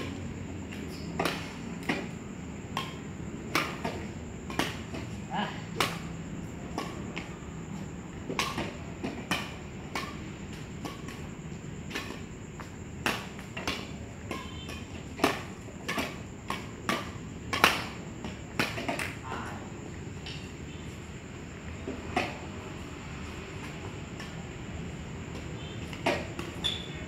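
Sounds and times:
rackets hitting shuttlecock: 0:00.0 - 0:06.1, 0:13.0 - 0:19.2.

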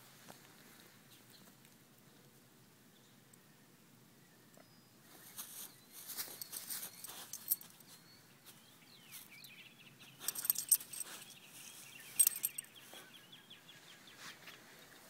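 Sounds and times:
rustling: 0:05.1 - 0:09.3, 0:10.1 - 0:13.1.

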